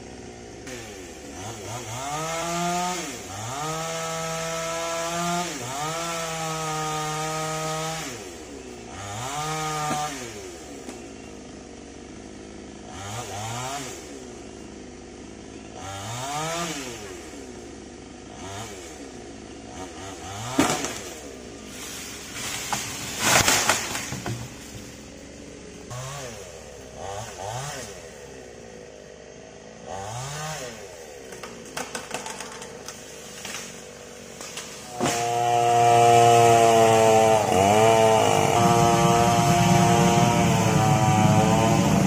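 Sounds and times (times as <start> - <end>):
chainsaw revving: 0.0 - 42.0.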